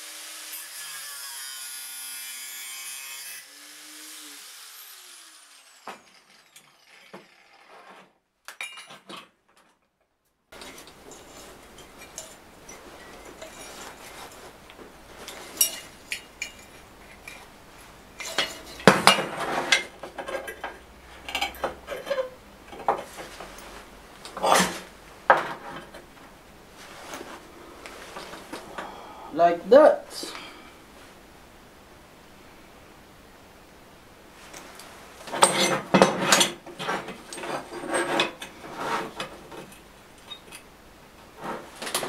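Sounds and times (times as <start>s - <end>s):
angle grinder grinding steel: 0.0s - 8.1s
grinder spinning down: 3.4s - 7.9s
metal tools clattering on workbench: 8.5s - 9.7s, 10.6s - 14.4s, 15.2s - 17.5s, 18.2s - 23.8s, 35.3s - 40.7s.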